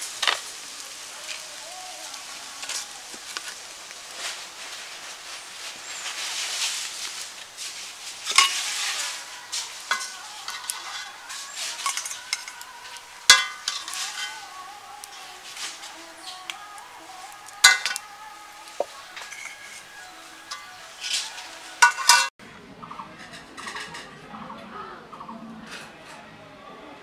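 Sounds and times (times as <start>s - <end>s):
food sizzling in a metal pan: 0.0s - 22.3s
utensil scraping a pan: 2.4s - 18.0s, 18.6s - 22.3s
utensil clinking against a pan: 8.2s - 16.5s, 17.6s - 18.0s, 18.8s - 22.3s.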